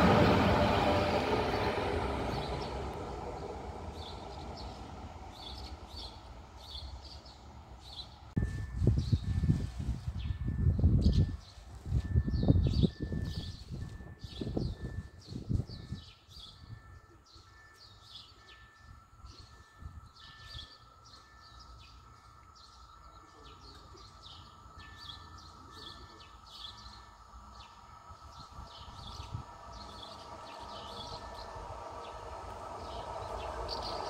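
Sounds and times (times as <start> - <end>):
distant electric train whine: 0.0 - 34.0
wind rumble on microphone: 8.4 - 16.9, 28.1 - 34.0.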